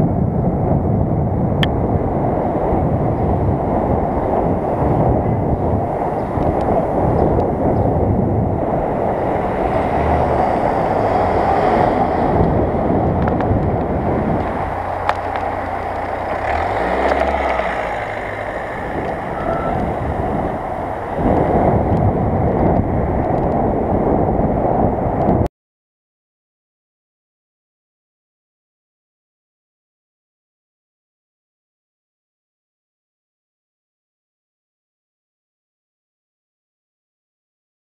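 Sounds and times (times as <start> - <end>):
wind buffeting microphone: 0.0 - 25.5
street traffic: 0.1 - 25.4
car engine close by: 1.6 - 24.2.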